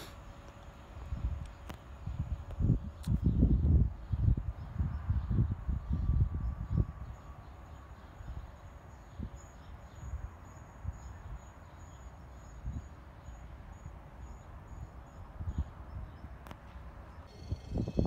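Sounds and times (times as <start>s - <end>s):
gusty wind on microphone: 1.0s - 7.4s, 17.5s - 18.0s
faint high-pitched chirp: 17.1s - 18.0s.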